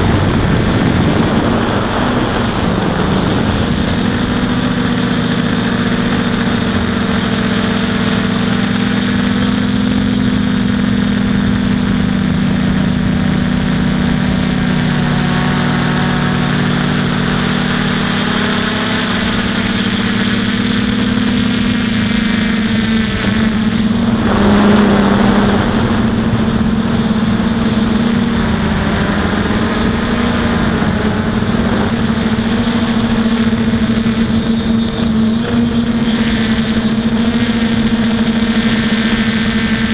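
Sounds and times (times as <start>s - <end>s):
quadcopter motors droning: 0.0s - 39.9s
brief rushing noise: 24.0s - 28.0s.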